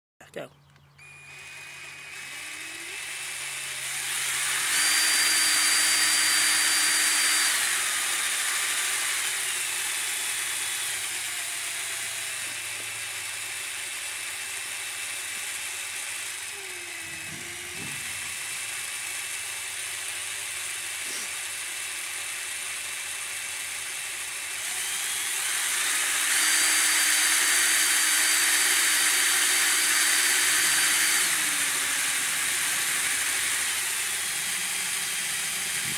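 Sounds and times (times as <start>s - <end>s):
model steam engine hissing: 21.0s - 21.5s.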